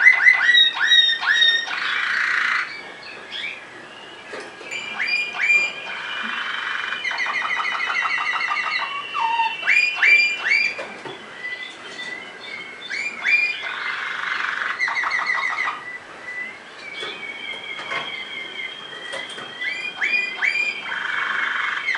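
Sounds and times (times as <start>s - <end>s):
canary singing trills and whistles: 0.0s - 21.9s.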